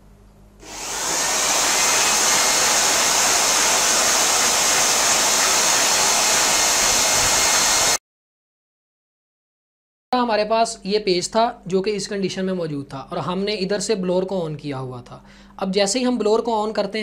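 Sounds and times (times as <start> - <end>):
electric air blower whining: 0.6 - 8.0.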